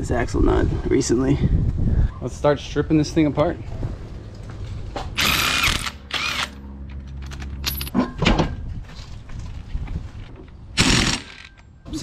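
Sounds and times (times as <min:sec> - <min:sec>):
impact wrench whirring and ratcheting: 0:05.2 - 0:06.6, 0:10.8 - 0:11.6.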